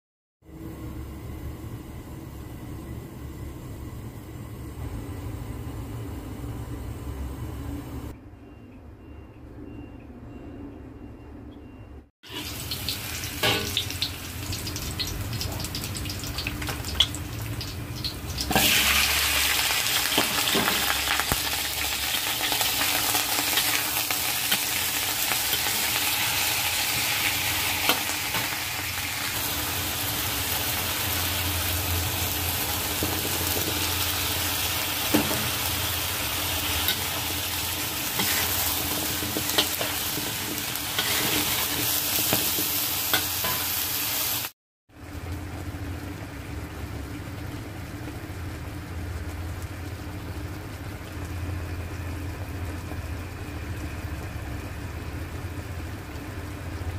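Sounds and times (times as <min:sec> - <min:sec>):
food sizzling in oil: 0:12.2 - 0:44.6
metal spatula scraping a wok: 0:38.2 - 0:42.5.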